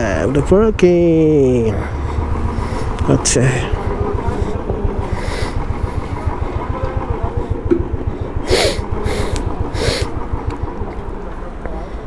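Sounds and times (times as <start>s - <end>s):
motorcycle engine idling: 0.0s - 12.0s
short hissing: 8.5s - 10.1s.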